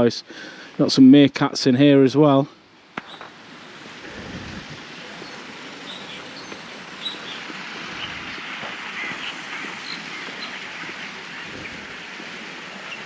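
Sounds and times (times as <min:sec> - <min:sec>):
steady outdoor hiss: 0:00.0 - 0:13.0
small birds chirping: 0:03.0 - 0:13.0.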